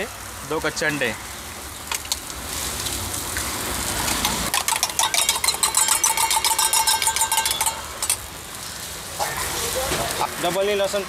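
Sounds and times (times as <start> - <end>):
spoon beating eggs in metal tumbler: 4.2 - 8.2.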